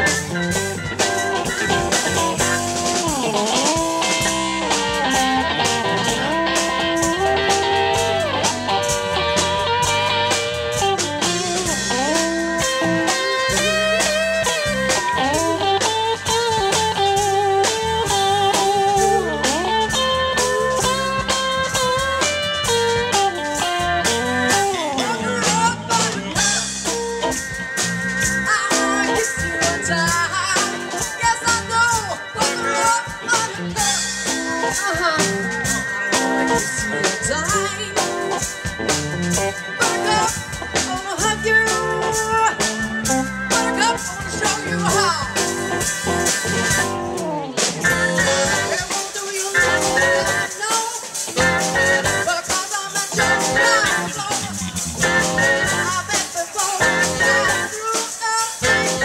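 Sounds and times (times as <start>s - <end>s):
bass guitar: 0.0s - 59.0s
drum kit beat: 0.0s - 59.0s
electric guitar: 0.0s - 59.0s
keyboard: 0.0s - 59.0s
woman singing: 28.5s - 33.7s, 37.2s - 38.1s, 39.8s - 42.6s, 47.3s - 51.2s, 52.2s - 54.5s, 55.6s - 59.0s.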